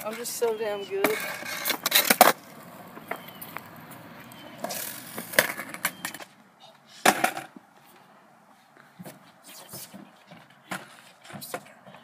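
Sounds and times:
skateboard clacking on ground: 0.0 - 4.0, 4.6 - 6.3, 7.0 - 7.6
skateboard wheels rolling on concrete: 0.0 - 12.0.

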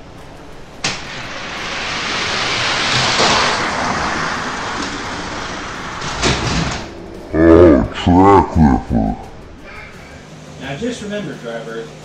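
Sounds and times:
toy cars rolling down plastic track: 1.1 - 6.9.

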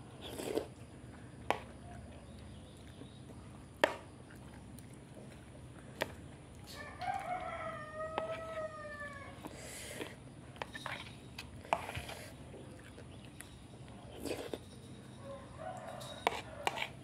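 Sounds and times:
rooster crowing: 6.7 - 9.4, 15.2 - 17.0.

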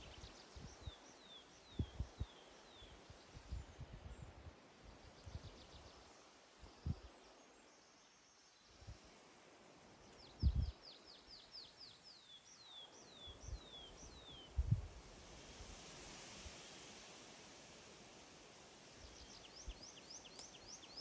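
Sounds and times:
songbird singing: 0.0 - 9.0, 10.0 - 14.6, 18.9 - 21.0.

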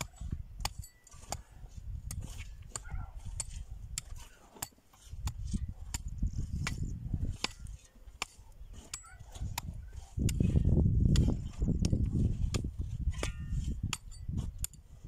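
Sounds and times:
hoes chopping stony soil: 0.0 - 15.0.

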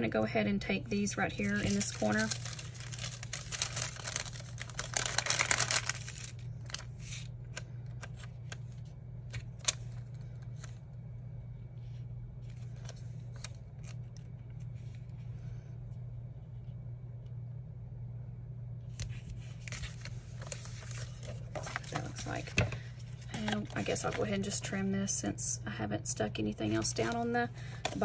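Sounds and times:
low steady hum: 0.0 - 28.0
plastic bag crinkling: 1.0 - 7.3, 19.6 - 24.4.

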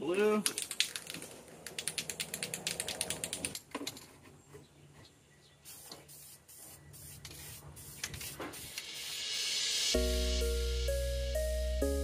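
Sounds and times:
spray can ball rattling: 0.5 - 3.6, 5.7 - 9.9
spray paint hissing: 5.6 - 10.3.

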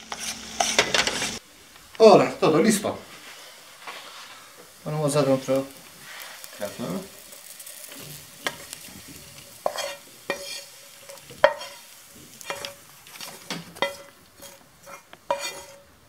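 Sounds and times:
wooden spoon scraping metal pan: 0.0 - 1.4, 5.5 - 15.9.

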